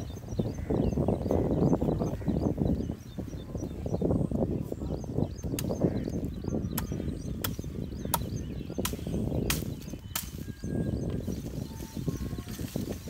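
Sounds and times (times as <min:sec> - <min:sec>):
axe chopping tree trunk: 0:06.8 - 0:10.4.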